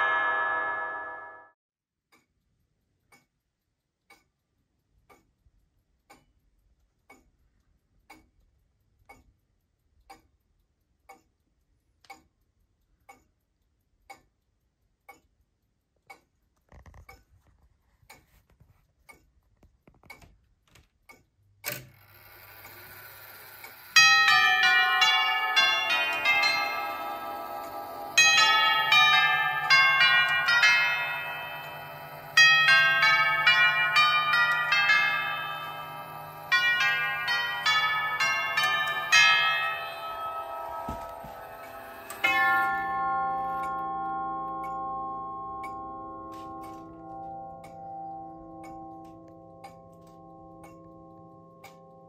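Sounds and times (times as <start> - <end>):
tubular bells chiming: 0.0 - 1.5, 24.0 - 52.0
clock ticking faintly: 2.0 - 52.0
sharp clock click: 2.1 - 17.3, 20.0 - 52.0.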